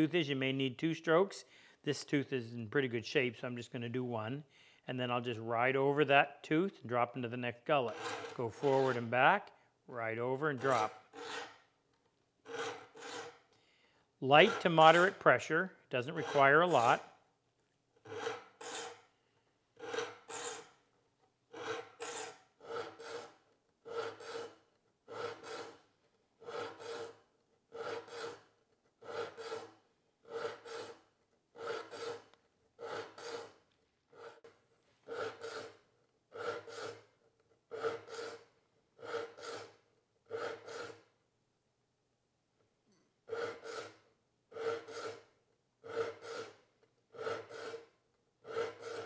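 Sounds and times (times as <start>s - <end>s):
file rasping on saw teeth: 7.8s - 9.3s, 10.2s - 11.8s, 12.4s - 13.5s, 14.2s - 17.2s, 18.0s - 19.1s, 19.8s - 20.9s, 21.5s - 41.2s, 43.2s - 49.0s.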